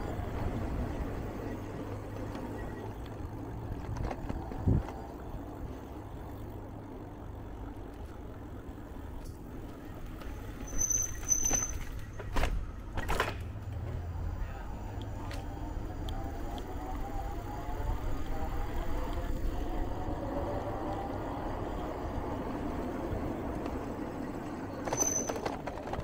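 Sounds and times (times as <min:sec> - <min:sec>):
wind rumble: 0:00.0 - 0:07.5
bicycle rolling noise: 0:00.0 - 0:26.0
high-pitched squeaks: 0:10.4 - 0:12.2, 0:24.7 - 0:25.6.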